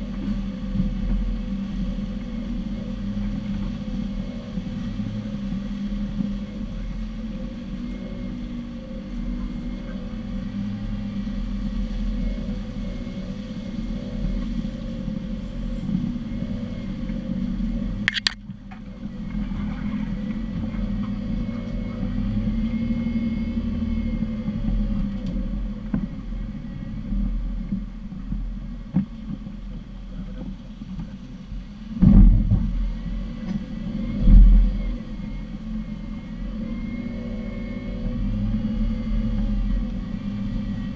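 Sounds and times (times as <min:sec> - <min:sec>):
off-road vehicle engine running: 0:00.0 - 0:40.9
sharp click: 0:18.1 - 0:18.4.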